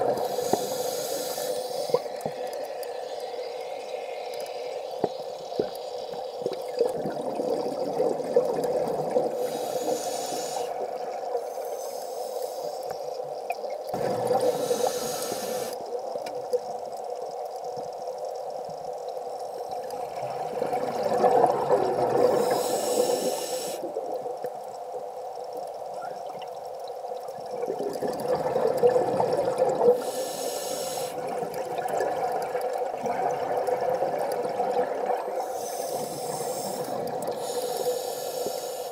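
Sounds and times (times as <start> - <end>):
steady underwater hum: 0.0 - 38.9
regulator inhalation hiss: 0.1 - 5.9, 9.3 - 13.2, 14.3 - 15.9, 22.3 - 24.0, 29.8 - 31.3, 35.3 - 38.9
exhaled bubbles: 1.8 - 11.6, 19.6 - 24.2, 27.2 - 30.2, 31.0 - 38.6.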